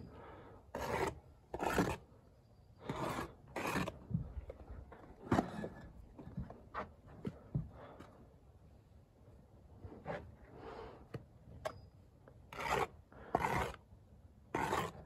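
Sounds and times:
trowel scraping mortar: 0:00.7 - 0:02.1, 0:02.8 - 0:04.0, 0:12.5 - 0:13.8, 0:14.5 - 0:15.0.

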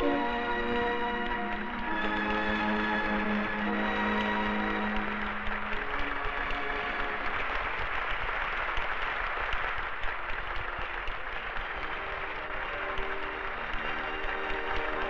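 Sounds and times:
audience clapping: 0:00.0 - 0:15.0.

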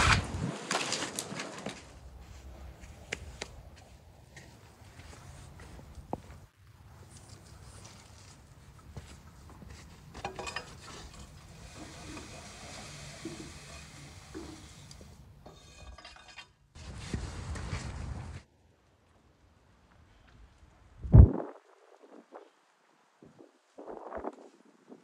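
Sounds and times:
tool scraping and knocking wood: 0:10.1 - 0:16.5
wood fire crackling: 0:10.1 - 0:16.5.

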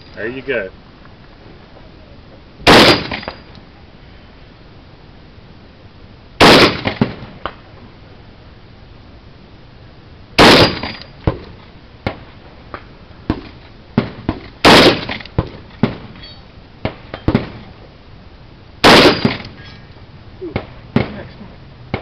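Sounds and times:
loud rifle shots: 0:02.6 - 0:03.4, 0:06.4 - 0:07.4, 0:10.4 - 0:11.4, 0:14.0 - 0:15.2, 0:18.8 - 0:19.6, 0:20.5 - 0:21.3.

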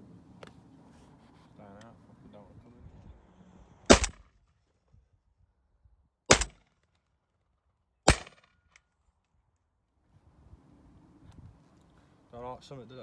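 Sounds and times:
shotgun shots: 0:03.9 - 0:04.3, 0:06.3 - 0:06.7, 0:08.1 - 0:08.5.

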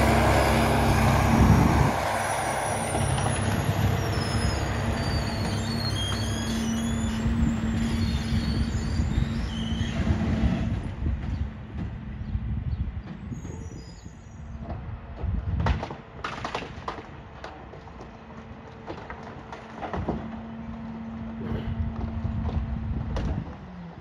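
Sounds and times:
garbage truck engine humming: 0:00.0 - 0:15.2, 0:18.1 - 0:24.0
clatter of knocks and bangs: 0:14.6 - 0:20.9.

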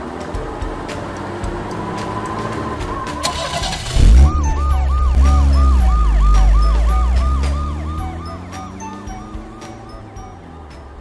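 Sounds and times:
police siren yelping: 0:02.9 - 0:10.4
deep engine rumble: 0:03.1 - 0:10.4.

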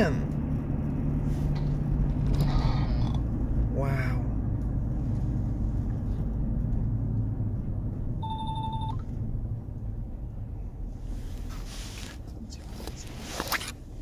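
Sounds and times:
car cabin road rumble: 0:00.0 - 0:14.0
short electronic beep: 0:08.2 - 0:09.0.

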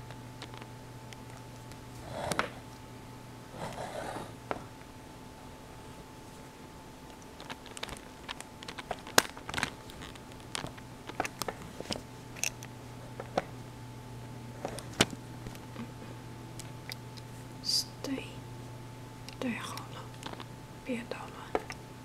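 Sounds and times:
faint steady hum: 0:00.0 - 0:22.0
computer keyboard typing: 0:07.1 - 0:11.5.

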